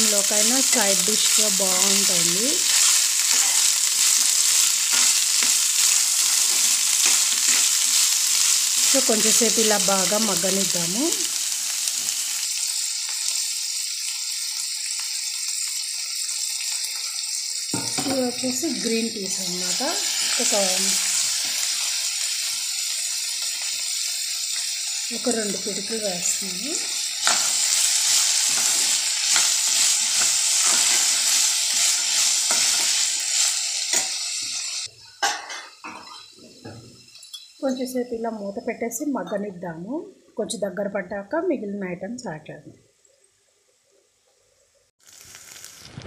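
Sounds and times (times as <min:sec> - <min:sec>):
vegetables sizzling in oil: 0:00.0 - 0:42.3, 0:45.0 - 0:46.0
steel spoon scraping a pan: 0:00.6 - 0:09.1, 0:24.5 - 0:36.3.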